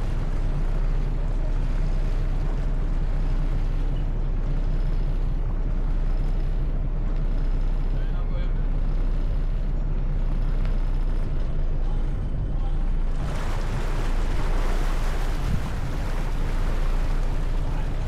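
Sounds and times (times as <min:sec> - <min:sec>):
ferry engine humming: 0:00.0 - 0:18.0
wind and water rushing: 0:12.9 - 0:18.0.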